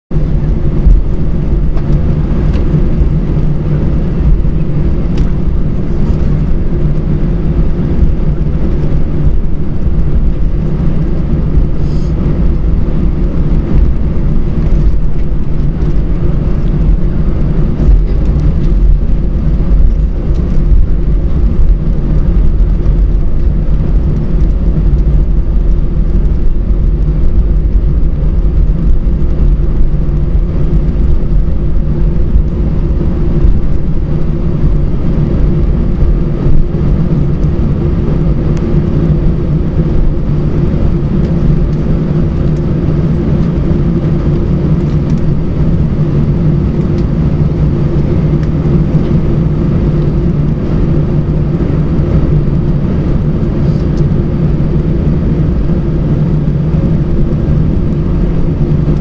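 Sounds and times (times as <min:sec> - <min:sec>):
airliner cabin engine rumble: 0:00.0 - 0:59.0.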